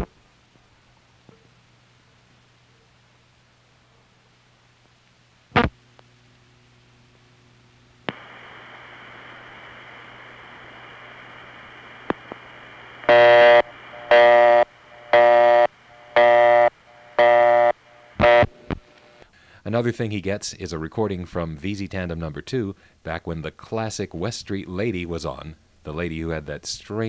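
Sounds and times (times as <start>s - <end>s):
telephone line hiss: 8.1s - 19.2s
busy signal pulsing: 13.1s - 18.5s.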